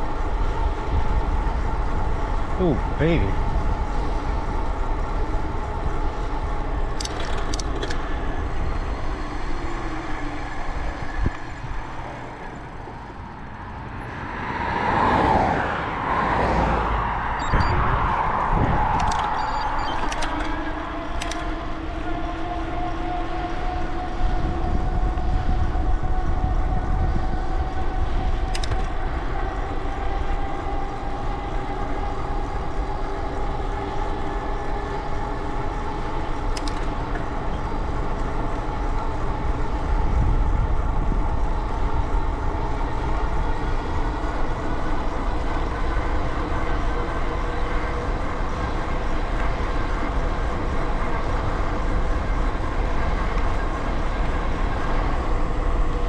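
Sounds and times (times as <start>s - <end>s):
heavy wind rumble: 0.0s - 56.0s
rising whine: 0.0s - 56.0s
sharp clicks: 18.9s - 20.5s, 36.5s - 36.9s.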